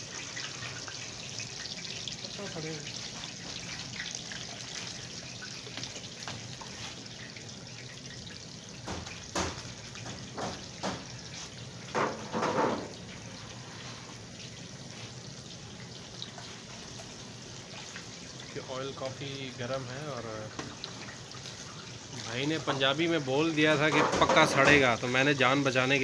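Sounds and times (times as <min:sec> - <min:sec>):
oil sizzling and bubbling: 0:00.0 - 0:26.0
metal tray knocking pan: 0:23.7 - 0:24.9.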